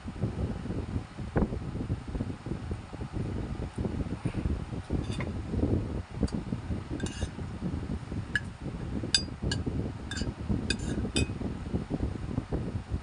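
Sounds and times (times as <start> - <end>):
metal spoon clinking against bowl: 10.1 - 11.3.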